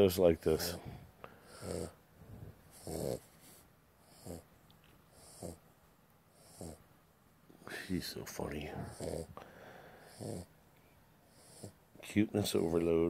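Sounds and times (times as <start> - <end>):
puppy snoring and snorting: 1.4 - 2.0, 2.7 - 4.5, 5.1 - 5.6, 6.3 - 6.8, 8.8 - 9.4, 10.1 - 10.6, 11.3 - 11.8, 12.4 - 12.9.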